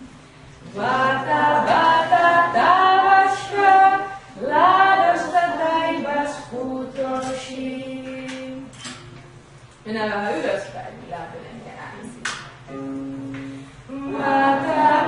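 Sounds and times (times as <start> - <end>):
children singing together: 0.6 - 8.6, 13.9 - 15.0.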